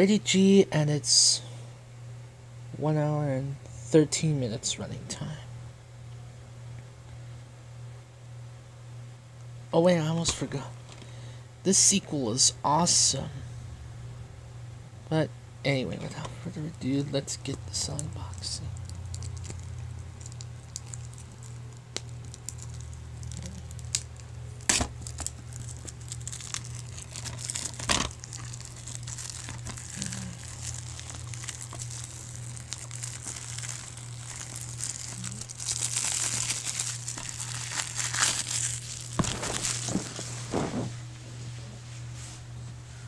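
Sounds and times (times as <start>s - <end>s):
low hum: 0.6s - 43.0s
plastic wrap crinkling: 17.7s - 41.0s.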